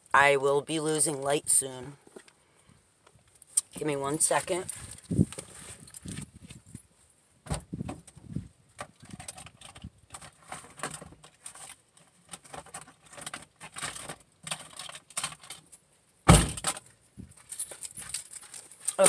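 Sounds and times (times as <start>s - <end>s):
rustling and clicking of handling: 3.0s - 7.0s, 7.9s - 16.0s, 16.6s - 19.0s.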